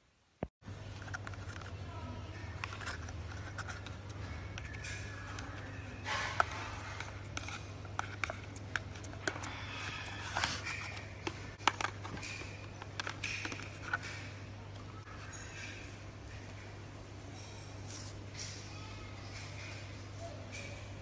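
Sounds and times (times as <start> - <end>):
plastic tub crackling and clicking: 10.3 - 14.3.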